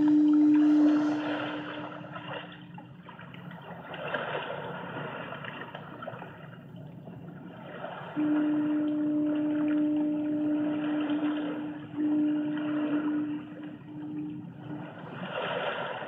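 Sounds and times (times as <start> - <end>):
steady low held tone: 0.0 - 3.1, 6.6 - 15.5
rushing water-like noise: 0.0 - 16.0.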